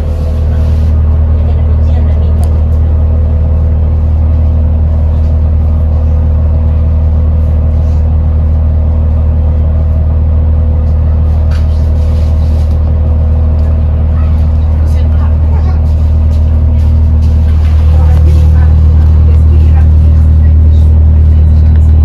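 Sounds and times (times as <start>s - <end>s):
bus engine drone from inside: 0.0s - 22.0s.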